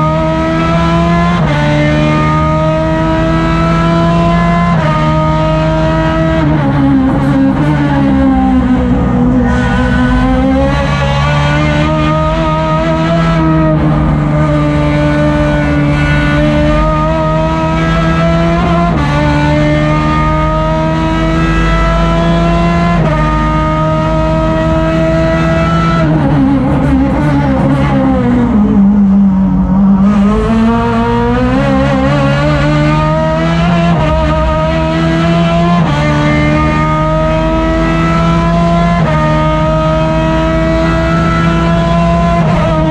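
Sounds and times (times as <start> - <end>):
race car engine revving: 0.0 - 42.9.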